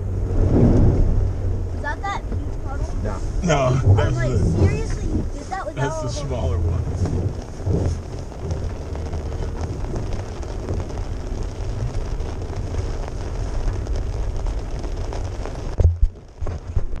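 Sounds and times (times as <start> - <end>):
tyres churning through mud: 0.0 - 15.5
vehicle engine rumbling: 0.0 - 17.0
loud thumps: 6.6 - 11.0.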